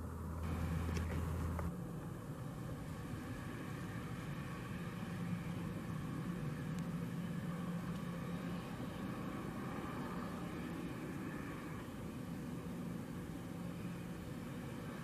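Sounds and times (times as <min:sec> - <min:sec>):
jet engines whining: 0:00.0 - 0:15.0.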